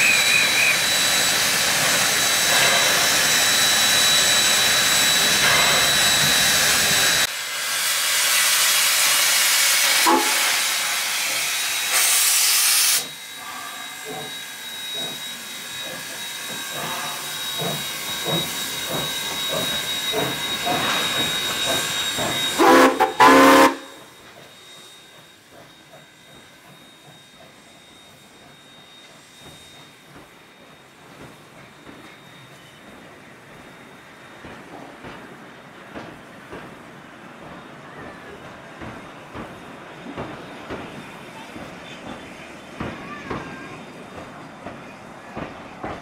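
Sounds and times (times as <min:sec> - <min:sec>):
steam whistle blasts: 0:00.0 - 0:06.6, 0:08.2 - 0:25.0
steam locomotive chuffing: 0:00.0 - 0:46.0
steam locomotive hissing: 0:00.0 - 0:46.0.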